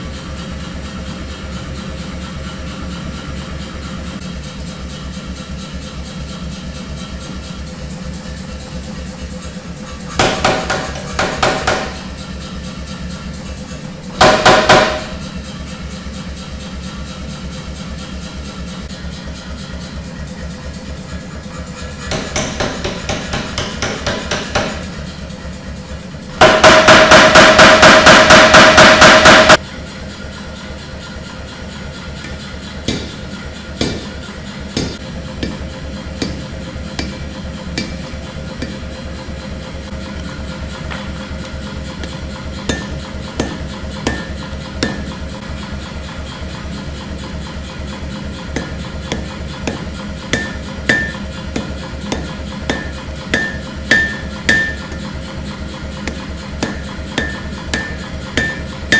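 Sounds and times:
power hammer striking steel: 0:10.1 - 0:12.4, 0:14.2 - 0:15.3, 0:22.0 - 0:25.1, 0:26.4 - 0:29.6, 0:32.2 - 0:39.3, 0:42.0 - 0:45.5, 0:47.8 - 0:58.9
power hammer motor running: 0:21.2 - 0:29.6, 0:31.0 - 0:58.9.

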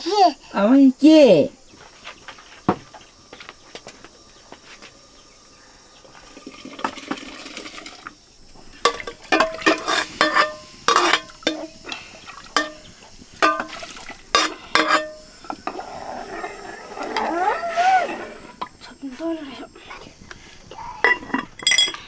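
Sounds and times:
soft rushing hiss: 0:00.0 - 0:22.0
metal utensil clinking on pot: 0:08.8 - 0:11.9, 0:12.6 - 0:15.8, 0:21.0 - 0:22.0.

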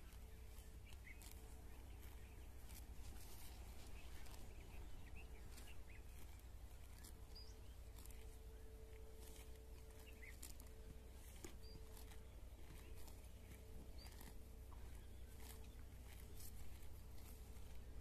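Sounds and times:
cows tearing and chewing grass: 0:00.0 - 0:18.0
faint bird chirps: 0:03.4 - 0:16.6.

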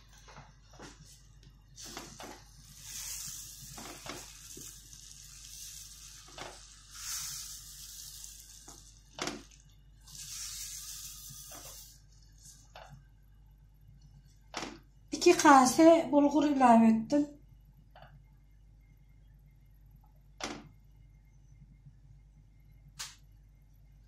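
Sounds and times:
grain pouring into broth: 0:01.8 - 0:12.7
wooden spoon stirring: 0:01.8 - 0:12.7.

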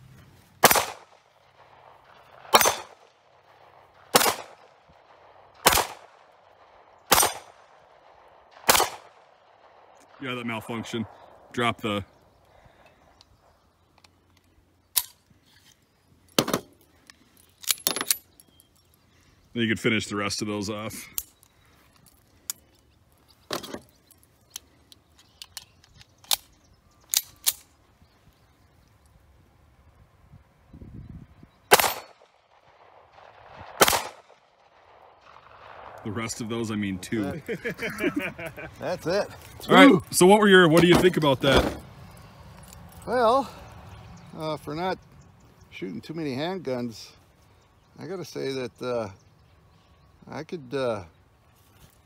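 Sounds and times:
pistol shots: 0:00.6 - 0:11.4, 0:31.7 - 0:36.4
pistol clicking and clacking: 0:23.6 - 0:27.7
pistol snaps: 0:24.5 - 0:27.8.

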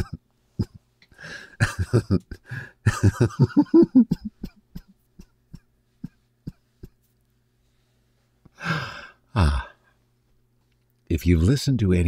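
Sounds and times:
man coughing: 0:00.0 - 0:00.2, 0:01.5 - 0:07.0.

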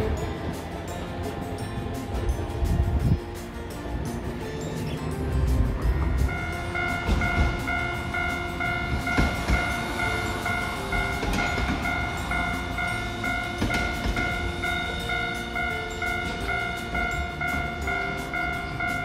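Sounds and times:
tram rumbling: 0:00.0 - 0:19.0
level crossing bell ringing: 0:06.3 - 0:19.0.

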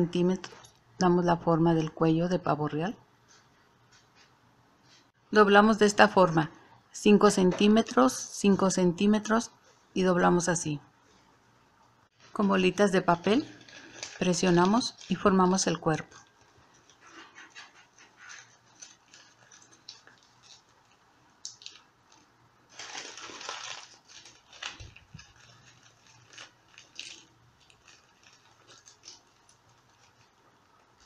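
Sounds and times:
paper crinkling: 0:13.0 - 0:31.0.

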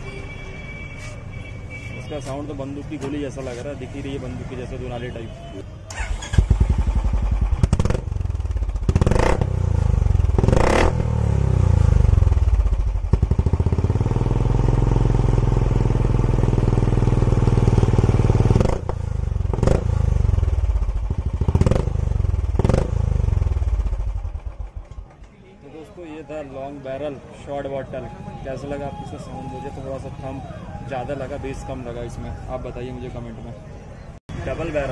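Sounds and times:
motorcycle engine revving: 0:05.9 - 0:24.8.

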